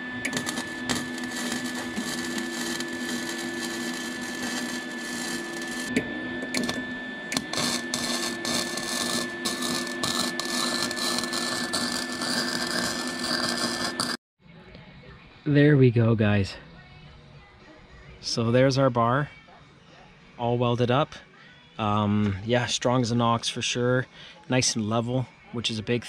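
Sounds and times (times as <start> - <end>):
steady electrical hum: 0.0 - 5.9
welding arc crackling and sizzling: 0.0 - 14.2.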